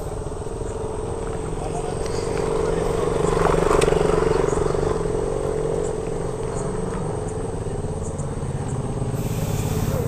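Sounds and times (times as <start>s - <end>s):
low engine hum: 0.0s - 10.0s.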